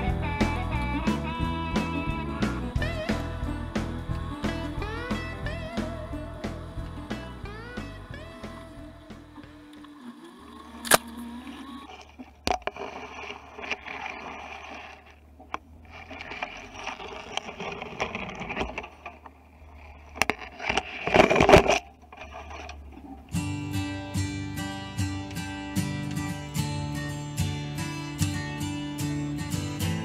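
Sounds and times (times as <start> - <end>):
low engine hum: 0.0 - 12.4
branches scraping car body: 15.8 - 23.0.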